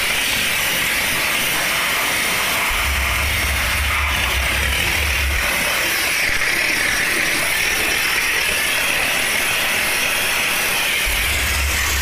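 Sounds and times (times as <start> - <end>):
steam jet hissing: 0.0 - 12.0
low hum: 2.7 - 5.6, 11.1 - 12.0.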